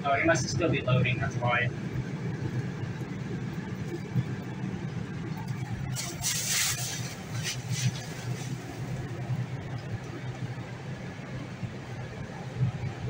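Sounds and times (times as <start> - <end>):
low mechanical hum: 0.0 - 13.0
short hiss: 5.9 - 9.0.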